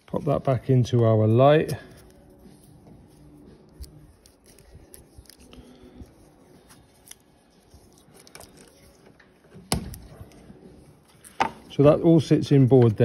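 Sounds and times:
tape crinkling and clicking: 1.6s - 11.4s.

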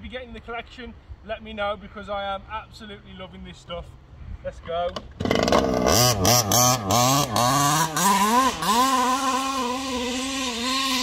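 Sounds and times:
two-stroke engine revving: 5.1s - 11.0s.

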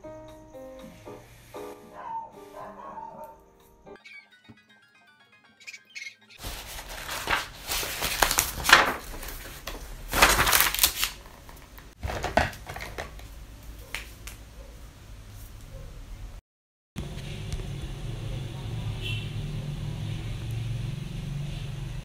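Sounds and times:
crinkling and rustling with clicks: 6.4s - 14.4s.

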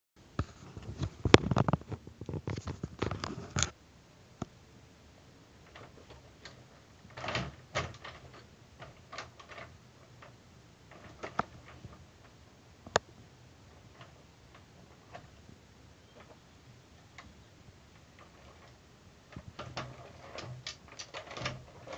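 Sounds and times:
plastic toy truck handling clatter: 5.7s - 12.0s, 18.0s - 21.9s.

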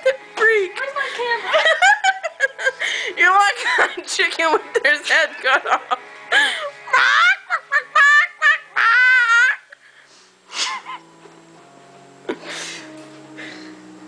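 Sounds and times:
faint music with held notes: 0.0s - 14.0s
girl laughing and squealing: 6.5s - 9.8s, 10.6s - 11.0s.

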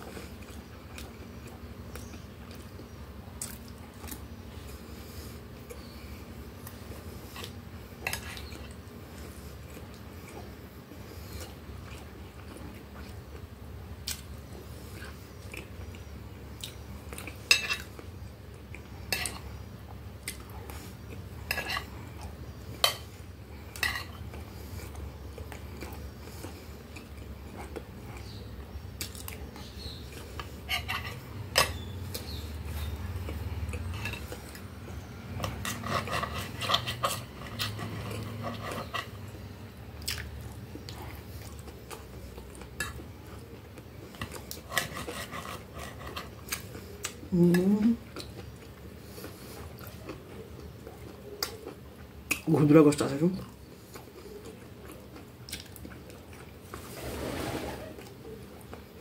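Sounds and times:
low room hum: 0.0s - 59.0s
chewing: 6.6s - 39.4s, 40.0s - 52.5s, 53.4s - 56.8s.

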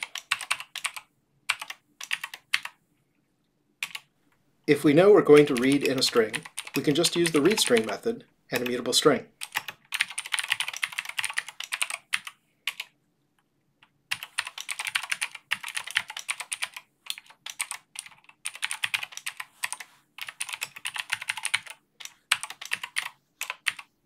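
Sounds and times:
computer keyboard typing: 0.0s - 2.8s, 3.8s - 4.1s, 5.3s - 8.0s, 8.6s - 8.8s, 9.4s - 13.0s, 13.8s - 23.9s.

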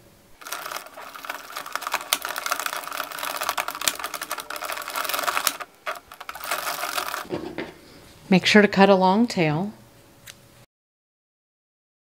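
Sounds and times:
knitting machine needles clicking: 0.4s - 7.3s.

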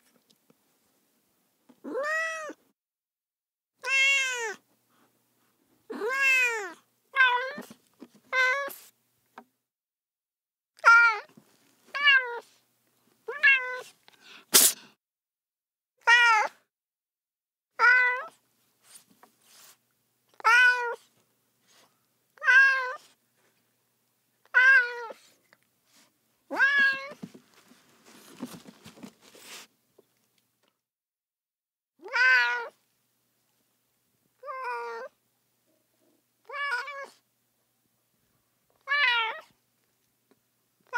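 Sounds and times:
cat meowing: 1.8s - 2.6s, 3.8s - 4.6s, 5.9s - 7.7s, 12.0s - 12.5s, 13.3s - 13.9s, 17.8s - 18.3s, 20.4s - 21.0s, 22.4s - 23.0s, 24.5s - 25.2s, 26.5s - 27.2s, 32.0s - 32.8s, 34.4s - 35.1s, 36.4s - 37.2s, 38.8s - 39.5s
soft rustle: 18.6s - 19.9s, 26.9s - 30.4s.

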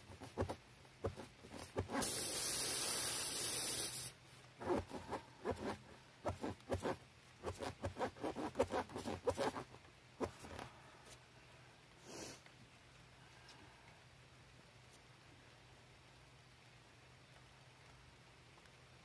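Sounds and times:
tool scraping in tire puncture: 0.2s - 10.6s
air hissing from a tire: 1.9s - 4.2s.

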